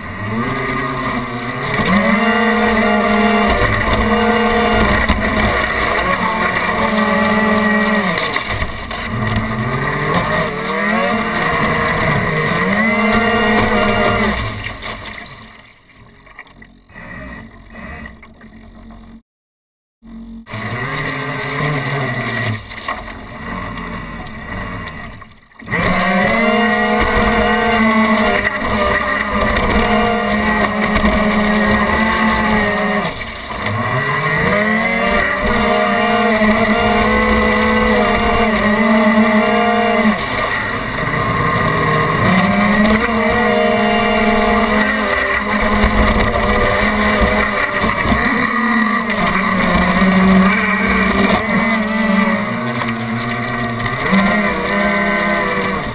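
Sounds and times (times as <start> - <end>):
electric motors whining: 0.0 - 14.8, 20.0 - 55.9
water rushing and splashing: 0.0 - 16.5, 20.6 - 55.9.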